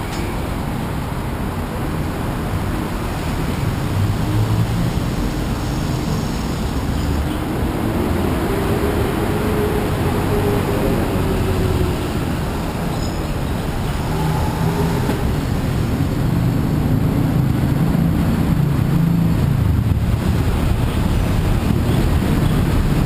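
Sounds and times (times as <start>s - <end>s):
road traffic rumble: 0.0s - 23.0s
engine drone rising in pitch: 7.6s - 19.3s.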